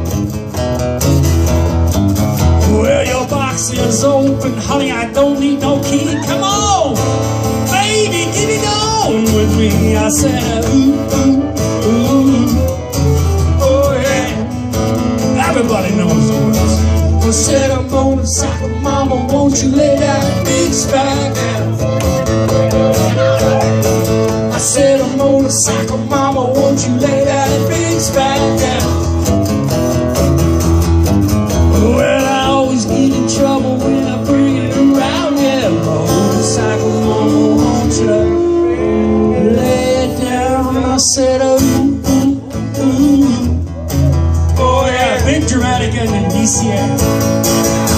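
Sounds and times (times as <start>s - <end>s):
bass: 0.0s - 47.9s
strummed acoustic guitars: 0.0s - 47.9s
person singing: 2.6s - 14.6s, 15.4s - 29.0s, 31.7s - 47.3s
fiddle: 17.0s - 24.5s.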